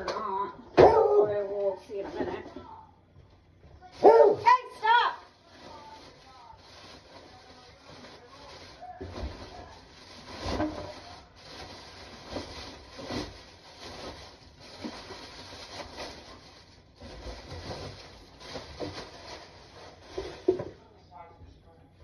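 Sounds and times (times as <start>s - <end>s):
cardboard scraping and rustling: 7.0s - 20.7s.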